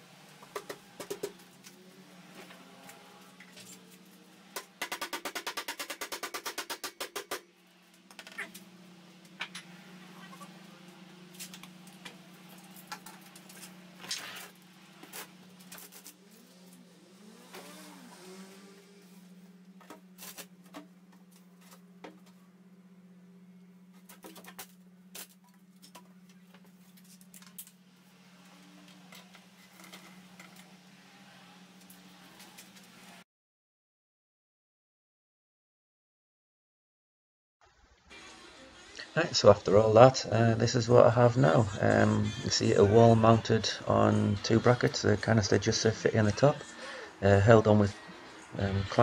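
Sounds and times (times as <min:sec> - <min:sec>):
steady low hum: 0:06.9 - 0:33.2.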